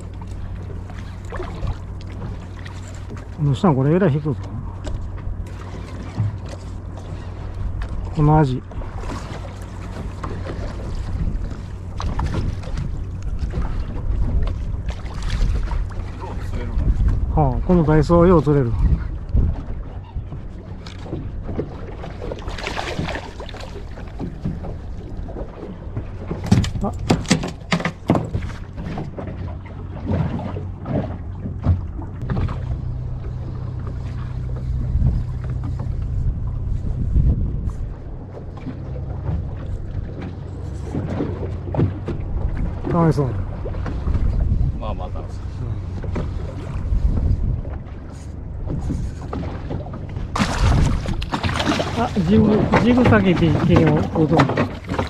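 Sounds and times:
steady low rumble: 0.0 - 54.2
water lapping at boat: 0.0 - 55.0
wind buffeting microphone: 0.0 - 55.0
fish splashes: 22.2 - 23.8, 49.4 - 55.0
sharp knocks and clatter: 26.3 - 29.2.

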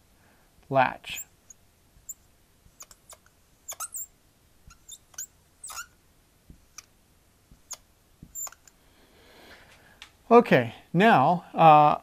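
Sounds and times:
marker squeaking on a whiteboard: 1.1 - 6.9, 7.5 - 8.7.

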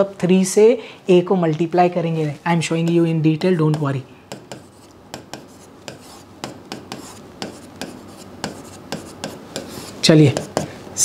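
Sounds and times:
writing scratches on a board: 3.7 - 10.8.

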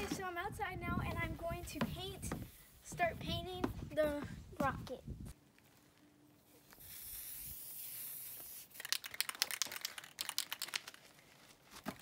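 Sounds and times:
spray can hissing: 6.7 - 10.7
spray can ball rattling: 6.7 - 11.1.

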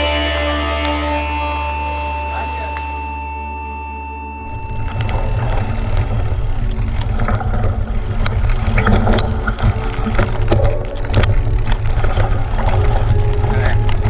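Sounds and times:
bike rattling: 4.4 - 14.0
wind rumble on microphone: 4.5 - 14.0.

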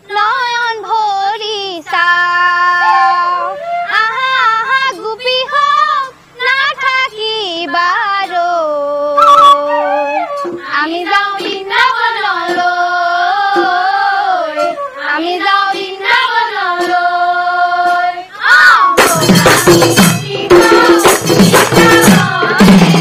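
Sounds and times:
female chorus singing in unison: 0.1 - 23.0
barrel drums: 19.0 - 23.0
jingling percussion: 19.0 - 23.0.

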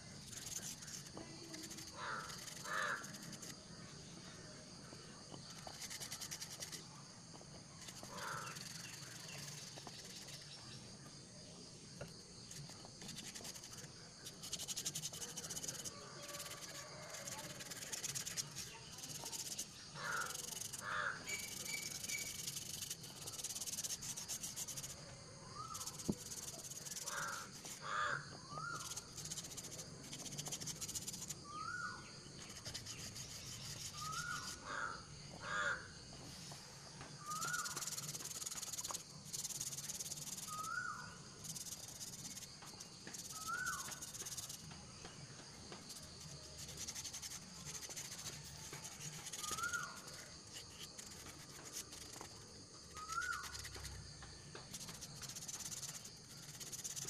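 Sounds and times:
sandpaper rasping: 0.2 - 3.5, 7.8 - 10.5, 12.5 - 25.0, 25.6 - 27.9, 28.6 - 31.4, 32.4 - 34.7, 37.3 - 40.8, 41.4 - 44.7, 45.8 - 54.0, 54.6 - 57.0
bird calling: 2.0 - 3.1, 20.0 - 22.3, 27.0 - 29.0, 40.5 - 41.1, 43.3 - 44.4, 49.4 - 50.0, 53.0 - 53.7.

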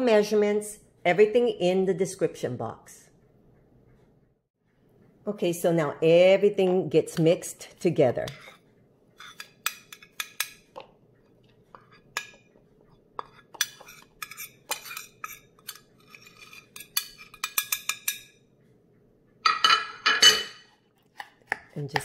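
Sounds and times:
metal spoon scraping ceramic plate: 8.2 - 18.4
spoon clattering in bowl: 13.2 - 18.4.

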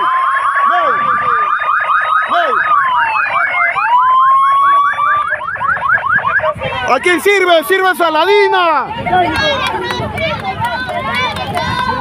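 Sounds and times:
police siren yelping: 0.0 - 9.0
police siren wailing: 0.0 - 9.6.

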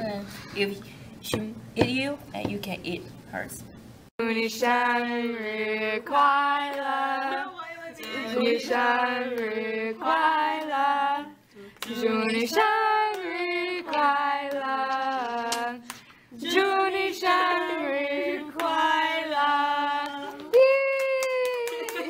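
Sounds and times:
women singing: 4.2 - 21.0.

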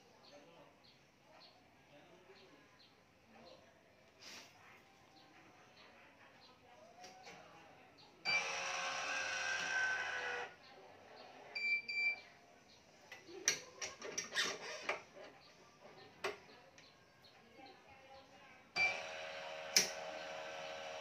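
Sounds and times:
stringing machine motor: 18.8 - 21.0.

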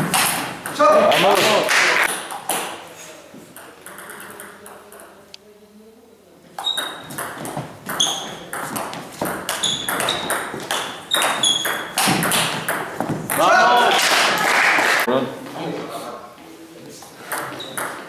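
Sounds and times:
table tennis ball hitting bats: 0.0 - 5.2, 6.6 - 14.9, 17.3 - 18.0.

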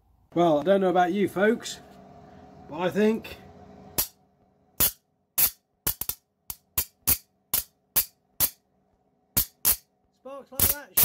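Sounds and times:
faint mains hum: 0.0 - 5.4
sharp electrical arcing cracks: 10.6 - 11.0.

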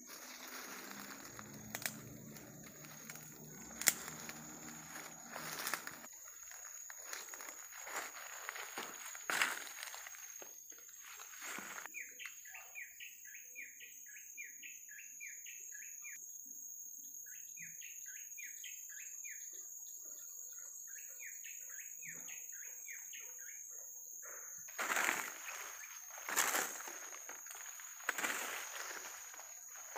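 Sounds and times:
footsteps rustling leaf litter: 0.0 - 11.9, 24.7 - 29.9
high insect drone: 0.0 - 11.9, 24.6 - 29.9.

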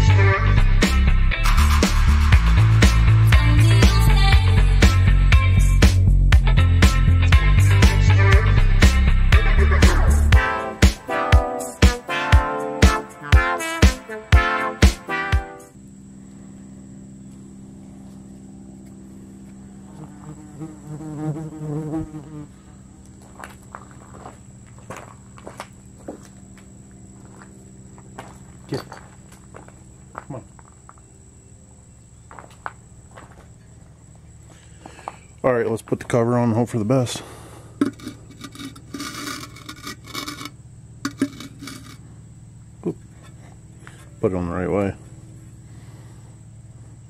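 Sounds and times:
flying insect buzzing: 6.8 - 23.2
steady low hum: 15.5 - 47.0
metal cover scraping: 37.8 - 42.1.

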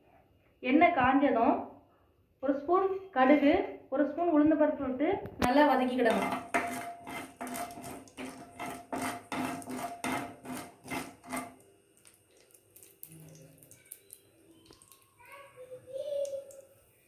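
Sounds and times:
seeds frying in oil: 5.9 - 15.2
spatula scraping a pan: 6.0 - 11.6.

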